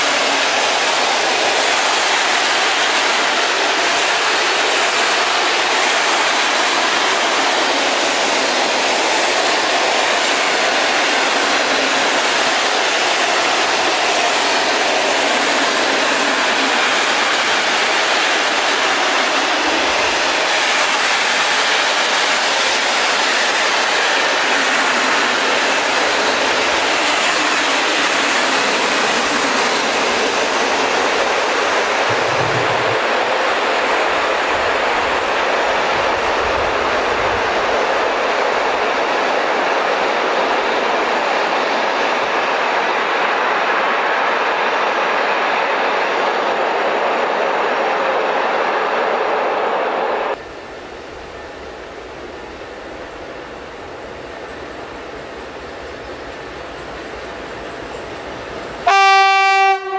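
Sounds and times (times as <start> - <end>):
steel wheels rolling on rails: 0.0 - 44.2.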